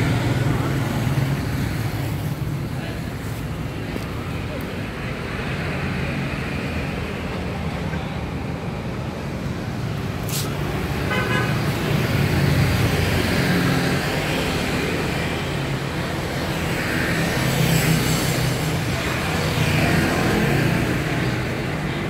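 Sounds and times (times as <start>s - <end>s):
traffic passing: 0.0s - 22.0s
car horn toot: 11.1s - 11.6s.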